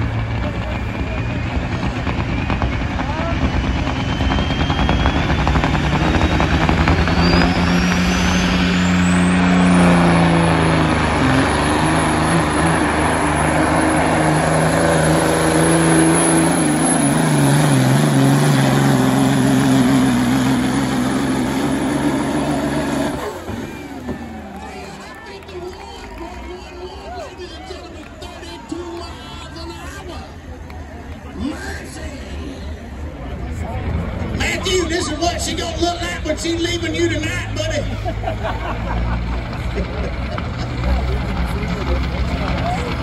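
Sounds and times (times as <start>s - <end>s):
diesel engine at full throttle: 0.0s - 43.0s
high whistle rising in pitch: 2.2s - 10.2s.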